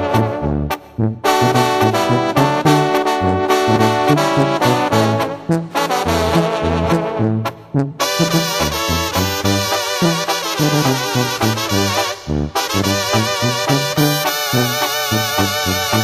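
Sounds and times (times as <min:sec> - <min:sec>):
band with brass horns: 0:00.0 - 0:16.0.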